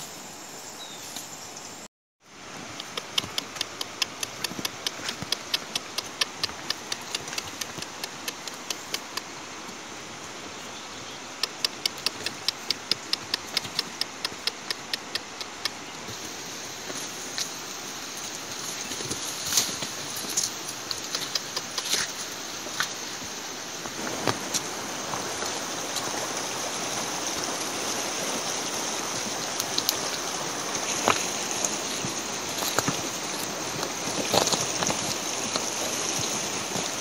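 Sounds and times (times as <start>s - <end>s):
steady hiss: 0.0s - 37.0s.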